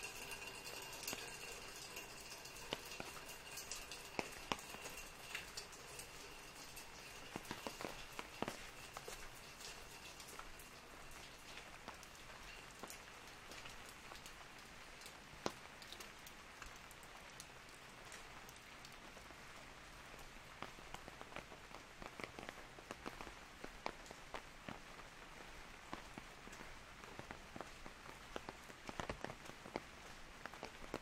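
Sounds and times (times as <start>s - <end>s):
light rain: 0.0s - 31.0s
raindrops tapping on umbrella: 0.0s - 31.0s.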